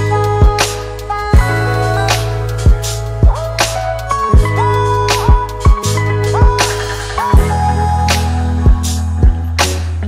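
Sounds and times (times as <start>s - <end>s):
deep kick drums: 1.4s - 1.6s, 4.3s - 4.7s, 8.7s - 9.5s.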